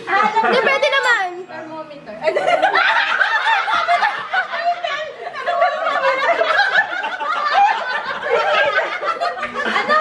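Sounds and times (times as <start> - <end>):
group of people laughing: 2.3 - 10.0.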